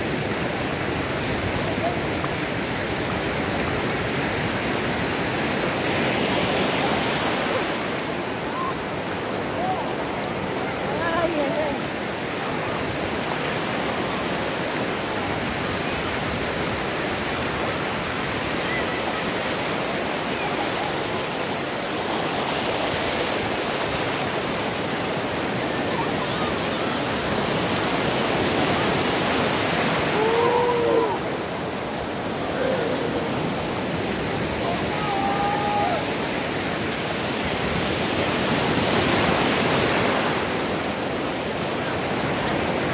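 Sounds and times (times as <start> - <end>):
ocean surf breaking: 0.0 - 42.9
faint voices calling out: 29.9 - 36.2.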